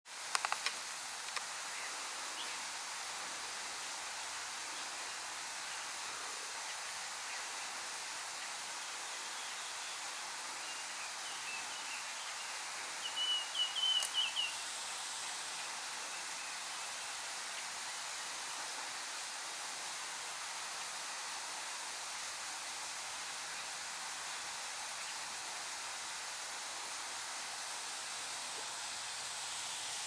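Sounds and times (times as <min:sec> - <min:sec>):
steady background hiss: 0:00.1 - 0:30.0
bird warbling song: 0:13.0 - 0:14.6.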